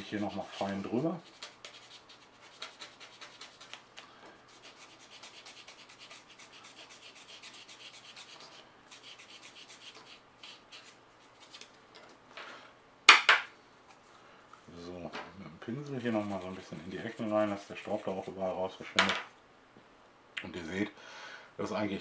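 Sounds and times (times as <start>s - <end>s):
sanding stick rubbing: 0.0s - 3.8s, 4.5s - 11.6s, 16.0s - 18.6s.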